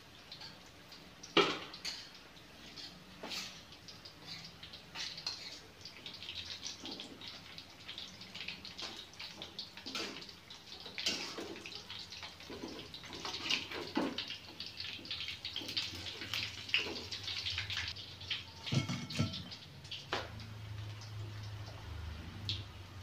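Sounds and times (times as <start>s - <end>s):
oil sizzling and popping: 0.0s - 23.0s
metal spatula scraping a wok: 1.8s - 5.6s, 18.7s - 19.5s.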